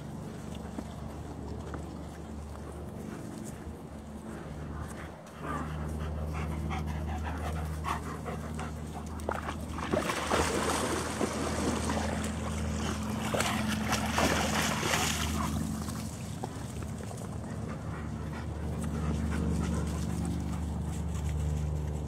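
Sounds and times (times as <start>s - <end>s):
dogs panting: 0.0s - 10.0s, 11.8s - 22.0s
splashing through shallow water: 8.7s - 21.9s.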